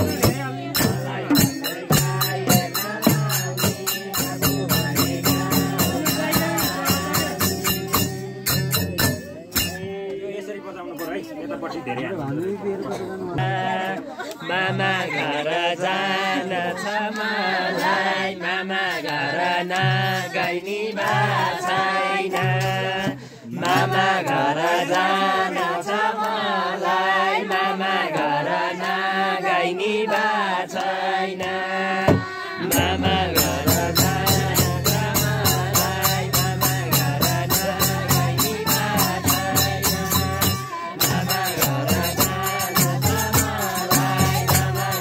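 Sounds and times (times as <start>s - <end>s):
barrel drum beating: 0.0s - 9.9s, 32.1s - 45.0s
frame drum: 0.0s - 9.9s, 32.1s - 45.0s
group singing devotional song: 0.0s - 45.0s.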